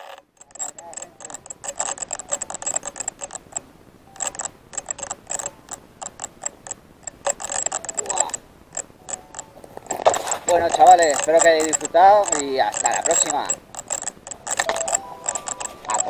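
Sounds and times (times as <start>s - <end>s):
rapid sharp clicks and ticks: 0.0s - 16.0s.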